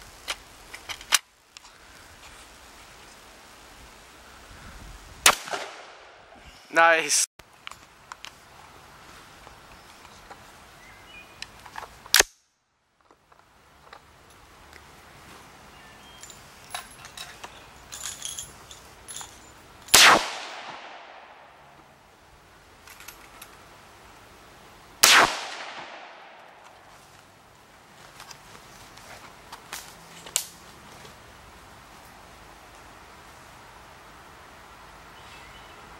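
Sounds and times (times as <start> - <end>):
rifle shots echoing: 5.2 - 6.3, 19.9 - 21.6, 25.0 - 26.6.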